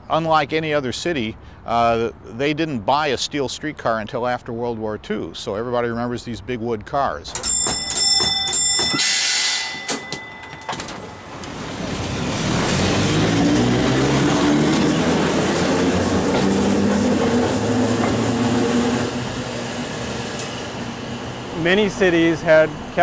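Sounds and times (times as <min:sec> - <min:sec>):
brief ringing tone: 0:07.4 - 0:11.5
streetcar wheels rumbling on rail: 0:09.1 - 0:23.0.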